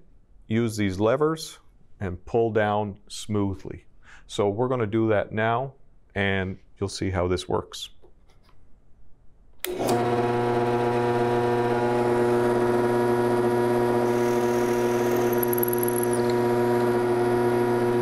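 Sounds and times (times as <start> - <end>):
drill press motor humming: 9.6 - 18.0
drill bit whine in wood: 9.8 - 18.0.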